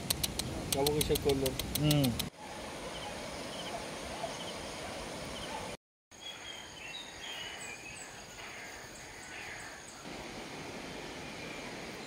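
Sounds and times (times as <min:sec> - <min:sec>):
faint high insect tone: 0:02.6 - 0:12.0
small birds chirping: 0:02.8 - 0:10.1.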